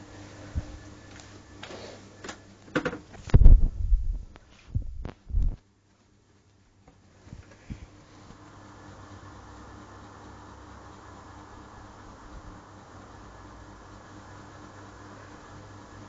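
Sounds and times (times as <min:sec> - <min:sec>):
dull low thumps: 0:03.3 - 0:05.6.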